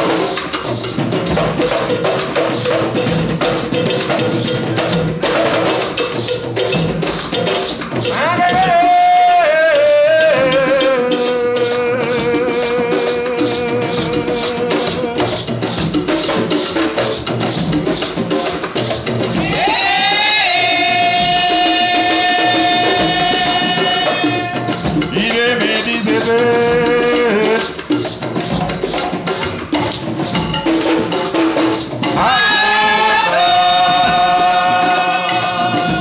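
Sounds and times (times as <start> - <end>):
hand drums: 0.0 - 36.0
maracas shaking: 0.0 - 36.0
person singing long notes: 8.1 - 15.5, 19.4 - 27.7, 32.2 - 36.0.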